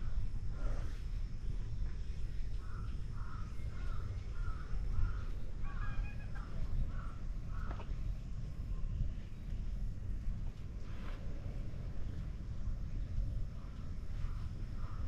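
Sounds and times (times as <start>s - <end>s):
steady low rumble: 0.0s - 15.0s
crow cawing: 2.6s - 7.9s.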